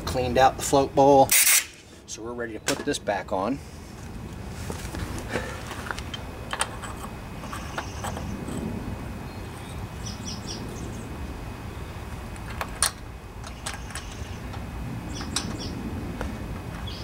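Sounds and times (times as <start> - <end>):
low outdoor background: 0.0 - 17.0
small birds chirping: 7.4 - 12.2, 13.4 - 15.8, 16.8 - 17.0
metal parts clicking and tapping: 12.4 - 14.6.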